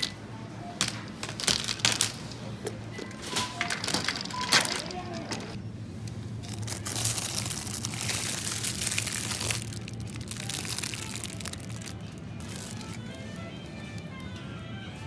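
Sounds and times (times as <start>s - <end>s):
plastic bag crinkling: 3.4s - 5.6s, 6.4s - 14.3s.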